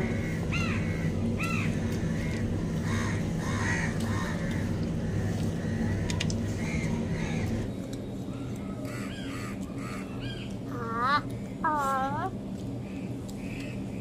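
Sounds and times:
crows cawing: 0.0 - 7.6, 8.8 - 10.4
steady low hum: 0.0 - 14.0.

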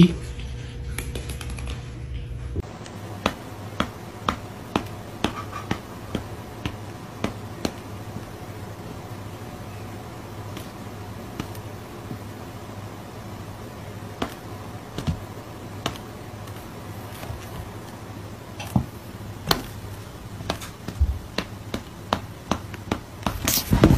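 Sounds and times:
steady low hum: 0.0 - 23.9
cat paws tapping and slapping: 2.8 - 8.4, 10.4 - 12.4, 14.1 - 18.0, 18.7 - 23.9.

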